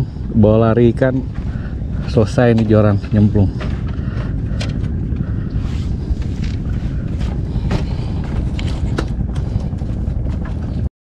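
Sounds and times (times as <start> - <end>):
wind buffeting microphone: 0.0 - 10.9.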